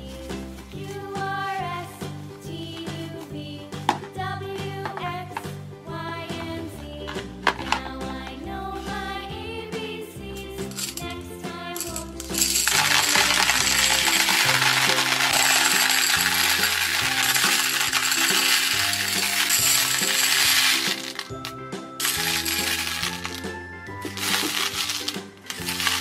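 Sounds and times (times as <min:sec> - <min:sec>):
background music: 0:00.0 - 0:26.0
candies clattering into plastic tub: 0:07.1 - 0:08.0, 0:10.7 - 0:11.2, 0:11.8 - 0:26.0
hands stirring candies: 0:10.6 - 0:26.0.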